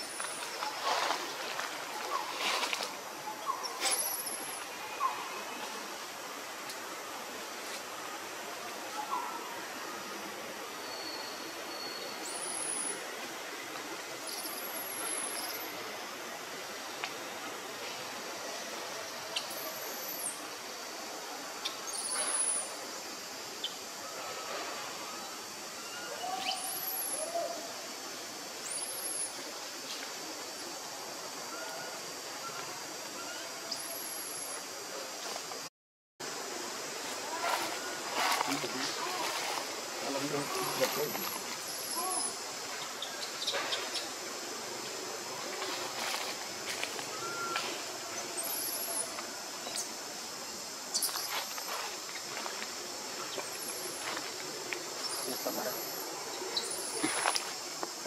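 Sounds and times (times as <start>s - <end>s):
forest birds calling: 0.0s - 5.8s, 10.7s - 13.2s, 14.2s - 15.8s, 18.8s - 20.5s, 21.6s - 22.8s, 23.6s - 27.9s, 37.0s - 57.8s
forest ambience hiss: 0.0s - 58.0s
high insect drone: 0.0s - 58.0s
thin high bird whistles: 47.1s - 47.7s.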